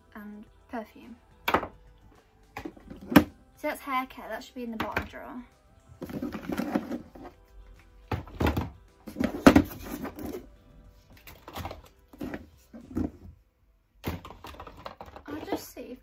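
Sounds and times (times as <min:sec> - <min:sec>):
plastic bottles knocking in drawer: 0:08.1 - 0:10.3, 0:14.0 - 0:15.7.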